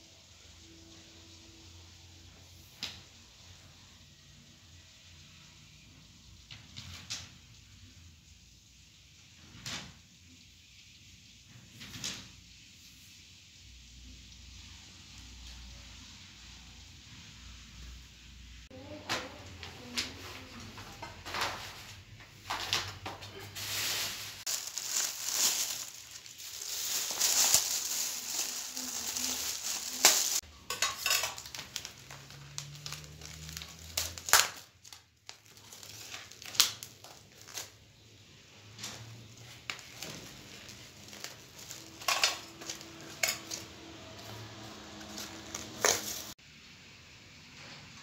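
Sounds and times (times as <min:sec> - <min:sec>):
plastic sheeting crinkling: 0:21.2 - 0:38.0, 0:38.7 - 0:46.4
plastic wrap crackling: 0:22.5 - 0:46.4.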